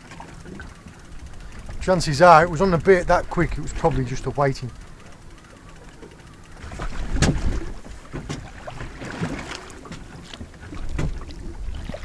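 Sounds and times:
wind buffeting microphone: 0.4s - 5.3s, 6.6s - 10.0s
sea slapping against boat: 5.8s - 12.0s.

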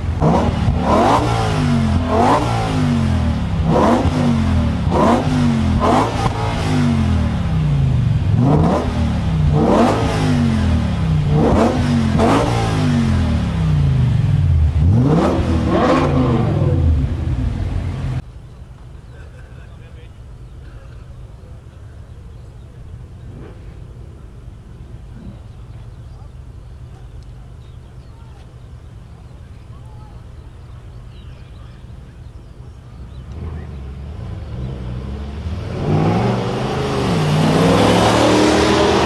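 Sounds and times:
car engine revving: 0.0s - 18.2s, 33.0s - 39.0s.

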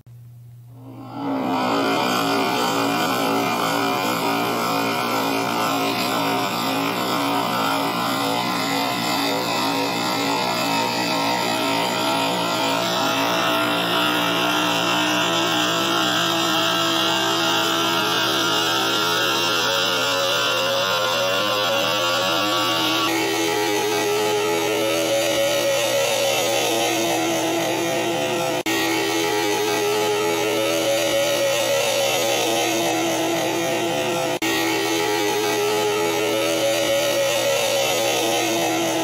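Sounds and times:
dense distorted drone: 0.1s - 39.0s.

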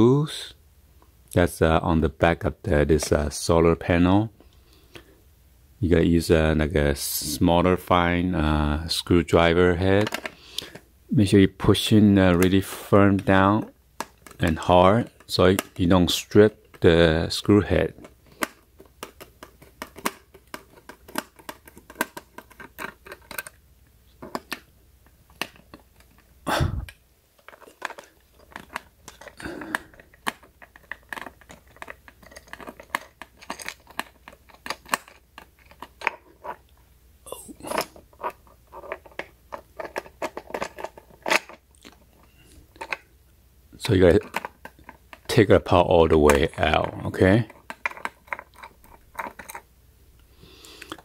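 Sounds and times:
screwdriver clicks and scrapes on plastic: 18.0s - 23.6s, 27.4s - 36.6s, 37.8s - 41.6s, 47.5s - 49.6s.

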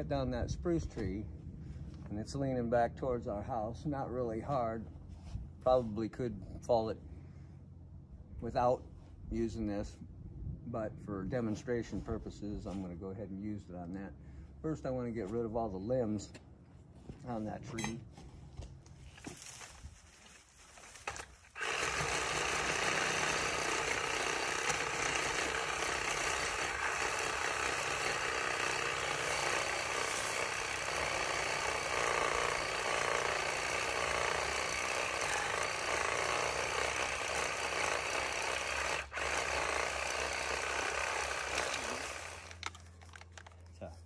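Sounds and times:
powered pole saw cutting: 21.0s - 43.2s.

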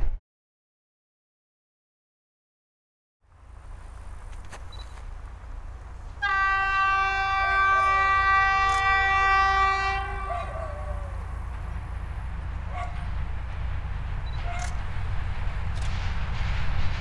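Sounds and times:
low engine rumble: 3.2s - 17.0s
locomotive horn blast: 6.1s - 11.4s.

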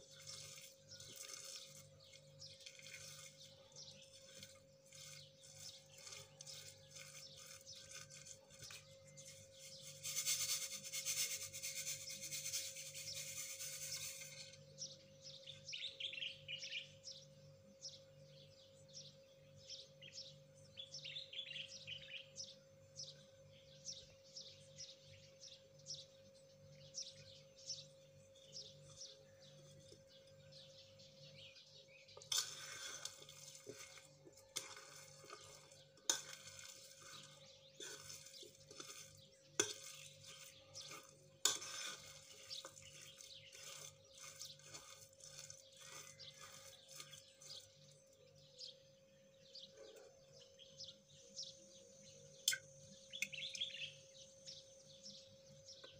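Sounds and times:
metal spoon scraping ceramic bowl: 0.0s - 14.9s, 32.2s - 47.8s
birds chirping: 0.0s - 55.9s.

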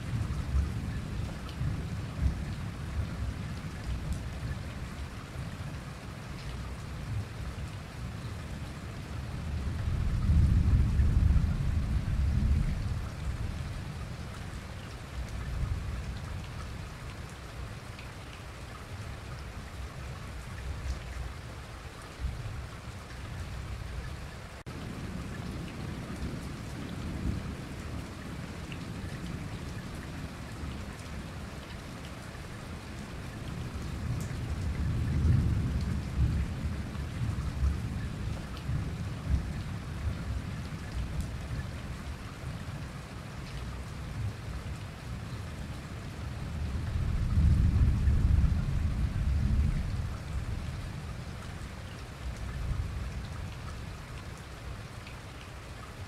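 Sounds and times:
steady rain: 0.0s - 56.0s
rolling thunder: 9.9s - 13.1s, 46.9s - 50.6s.

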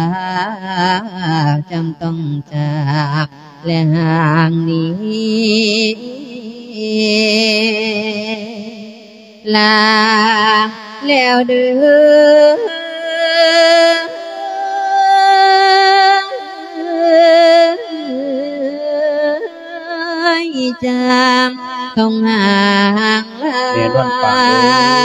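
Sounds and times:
monk singing into a microphone: 23.8s - 25.0s.

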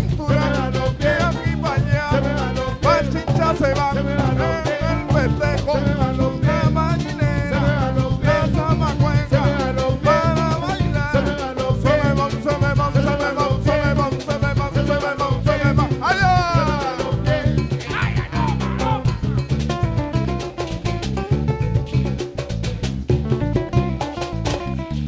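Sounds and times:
man singing: 0.0s - 19.5s
acoustic guitar: 0.0s - 25.0s
congas and hand percussion: 0.0s - 25.0s.

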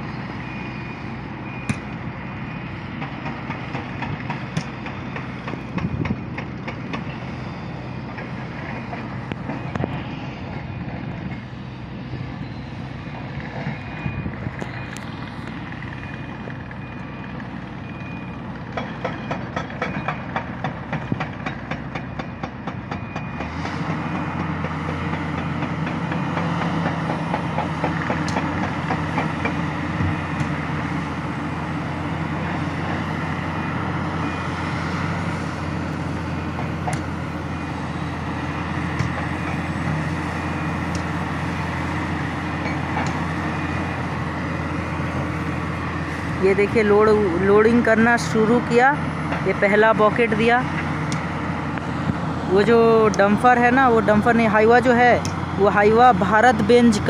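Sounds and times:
excavator diesel engine: 0.0s - 57.0s
high alarm beeps: 13.6s - 15.2s, 15.9s - 20.4s.

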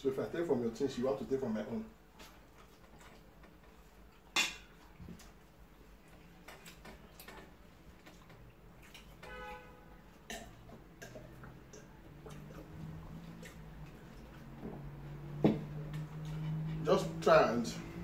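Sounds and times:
chewing: 2.2s - 9.3s, 10.2s - 15.0s.

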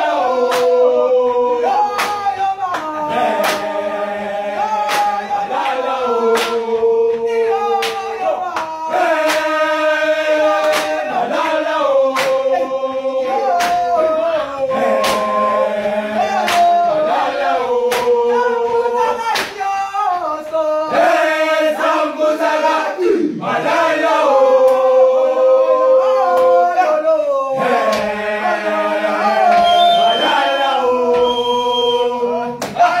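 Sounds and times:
male choir chanting in harmony: 0.0s - 19.2s, 20.2s - 33.0s
sharp percussive beat: 1.8s - 4.0s, 4.6s - 12.7s, 13.3s - 19.9s.

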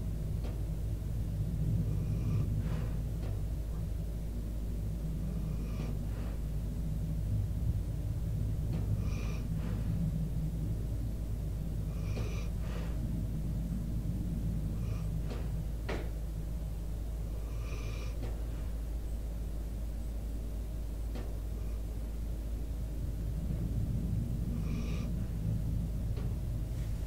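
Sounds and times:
dog snoring: 1.8s - 3.3s, 5.1s - 6.6s, 8.7s - 10.0s, 11.8s - 13.2s, 14.6s - 16.1s, 17.2s - 18.5s, 24.4s - 25.4s.

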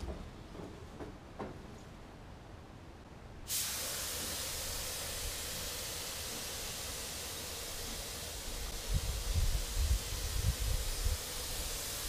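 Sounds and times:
spray gun hissing: 3.5s - 12.0s.

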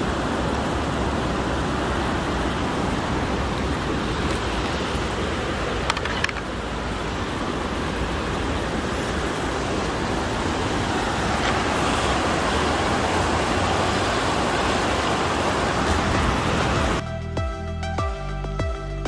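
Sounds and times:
river rapids rushing over rocks: 0.0s - 17.0s
electronic music with steady beat: 16.0s - 19.0s.

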